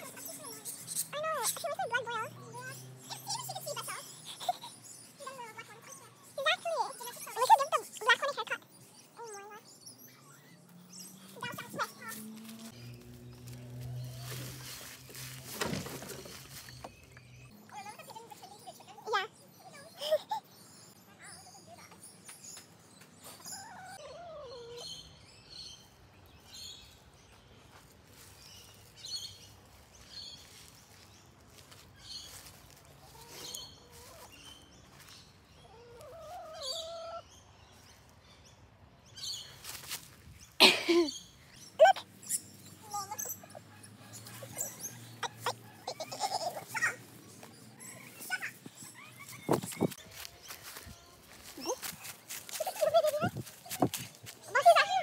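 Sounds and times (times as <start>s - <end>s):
hens chirping: 32.3s - 37.8s.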